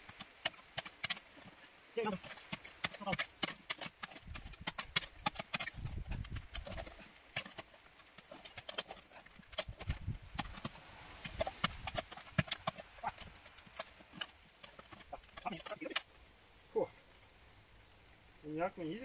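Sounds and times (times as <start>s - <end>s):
spade digging into stony soil: 0.0s - 16.1s
spade scraping against stones: 0.0s - 16.1s.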